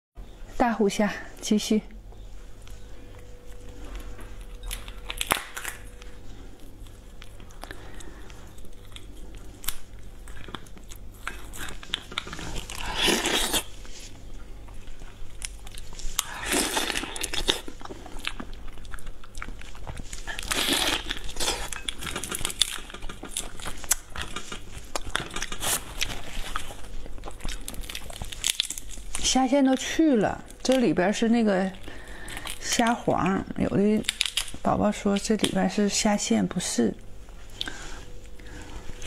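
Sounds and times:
biting and chewing: 0:03.2 - 0:14.0, 0:14.6 - 0:29.2, 0:34.0 - 0:34.6
prawn shells cracking: 0:04.4 - 0:06.2, 0:20.2 - 0:29.3, 0:34.0 - 0:34.7.

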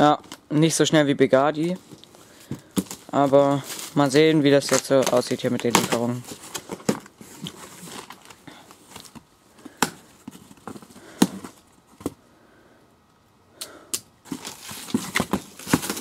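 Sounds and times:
knocks and scrapes on cardboard box: 0:14.3 - 0:16.0.

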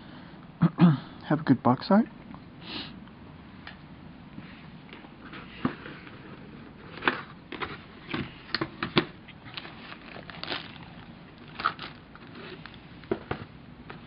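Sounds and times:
paper and plastic bags rustling: 0:05.2 - 0:14.0.

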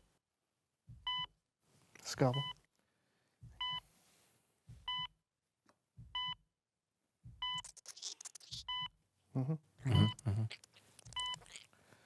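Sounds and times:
heart-rate monitor beeping: 0:00.9 - 0:01.4, 0:02.3 - 0:02.6, 0:03.4 - 0:03.9, 0:04.7 - 0:05.2, 0:06.0 - 0:06.5, 0:07.2 - 0:07.8, 0:08.4 - 0:09.0, 0:09.9 - 0:10.4, 0:11.0 - 0:11.6.

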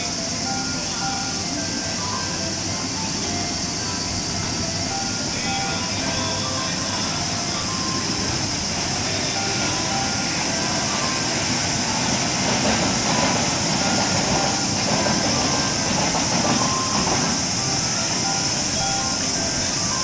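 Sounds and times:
faint melody of short notes: 0:00.0 - 0:20.0
steady hissing noise: 0:00.0 - 0:20.0.

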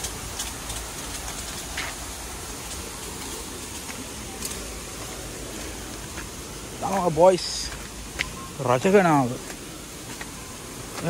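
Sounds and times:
rocky stream rushing: 0:00.0 - 0:11.0.

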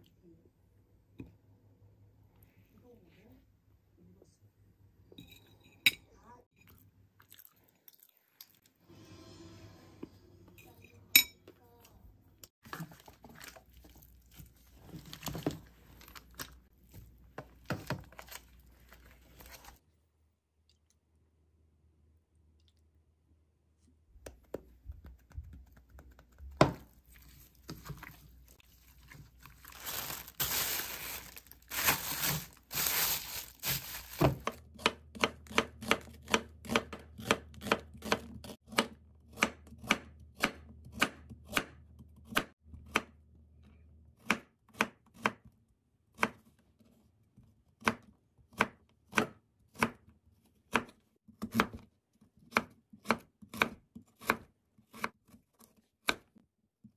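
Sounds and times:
wet mixing with spoon in bowl: 0:06.6 - 0:08.8, 0:12.6 - 0:19.8, 0:23.8 - 0:32.8.

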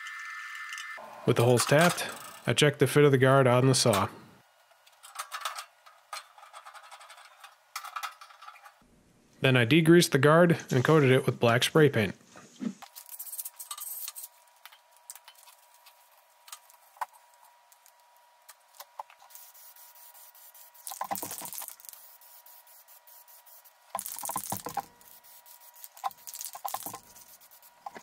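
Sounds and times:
spray can clicks and rattles: 0:19.3 - 0:28.0
spray paint can hissing: 0:19.3 - 0:28.0.

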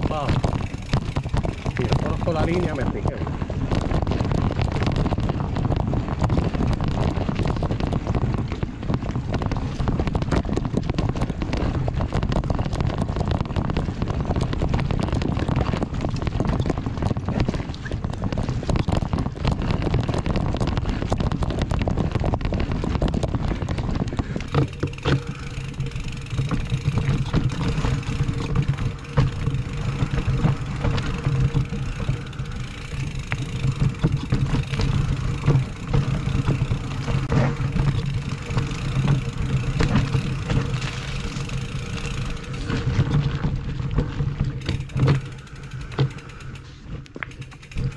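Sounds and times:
bike rattling over roots: 0:00.0 - 0:47.9
wind and tyre noise: 0:00.0 - 0:47.9
steady low hum: 0:23.2 - 0:47.9.

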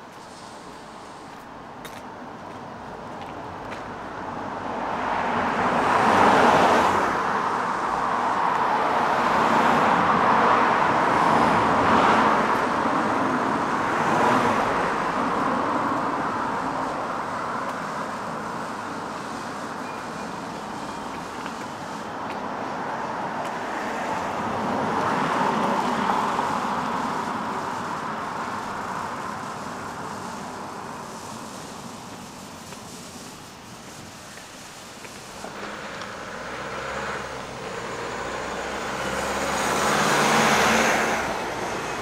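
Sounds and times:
road traffic passing: 0:00.0 - 0:42.0.

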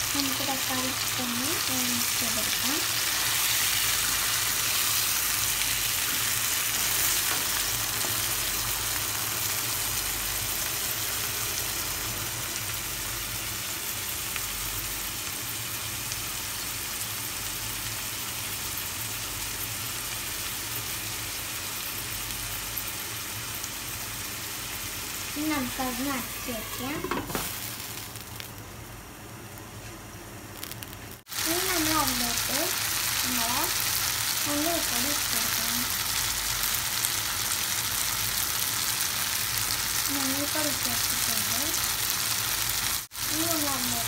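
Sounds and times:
vegetables sizzling in hot oil: 0:00.0 - 0:44.0.

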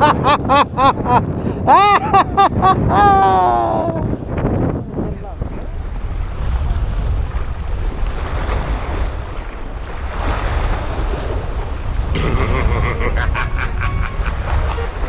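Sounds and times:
sea waves breaking over rocks: 0:00.0 - 0:15.0
wind rumble on microphone: 0:00.0 - 0:15.0.

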